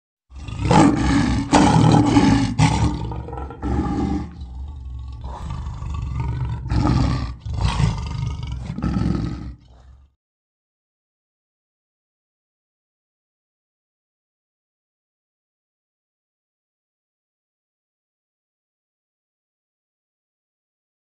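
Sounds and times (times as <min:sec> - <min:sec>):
big cat roaring: 0:00.3 - 0:10.2.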